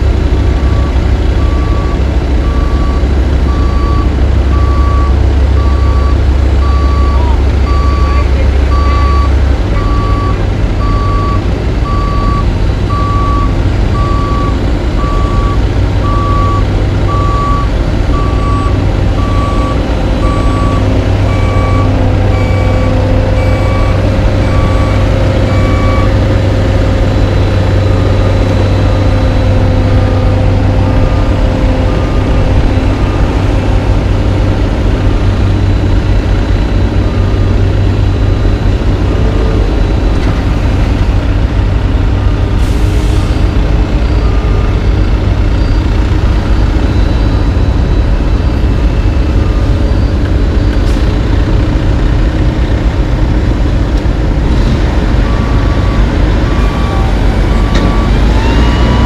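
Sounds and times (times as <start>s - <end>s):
diesel paving machines running: 0.0s - 59.0s
back-up alarms beeping: 0.6s - 26.2s
higher-pitched alarm beeping: 1.4s - 26.2s.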